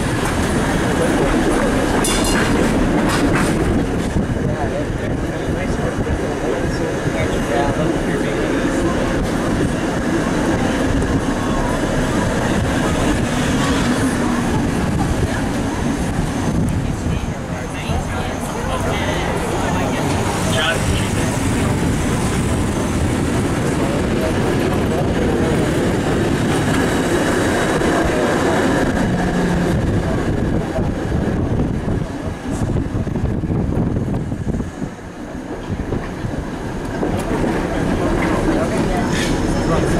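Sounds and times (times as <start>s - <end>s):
streetcar wheels rumbling on rails: 0.0s - 39.9s.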